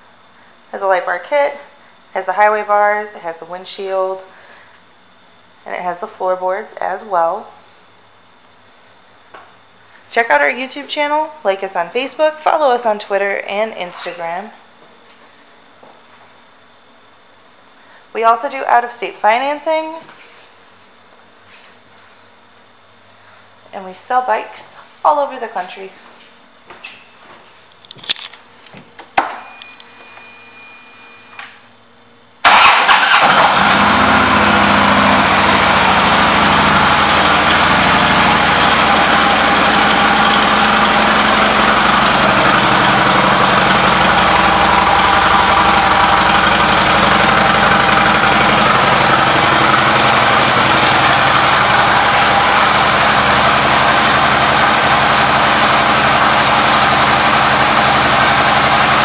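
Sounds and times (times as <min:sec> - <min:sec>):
motorcycle engine starting and idling: 0:32.4 - 0:59.0.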